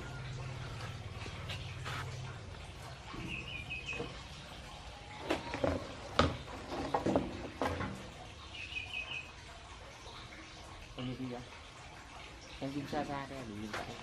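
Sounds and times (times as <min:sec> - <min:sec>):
bird chirping: 0:03.1 - 0:04.3, 0:08.4 - 0:09.4.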